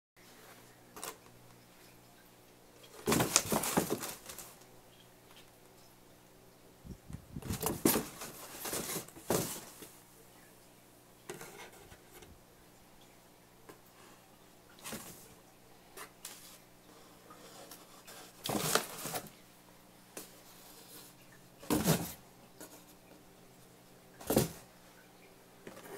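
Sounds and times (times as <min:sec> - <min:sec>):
cardboard box rustling and scraping: 0:03.0 - 0:04.4, 0:07.4 - 0:09.8, 0:18.2 - 0:19.3, 0:21.7 - 0:22.2.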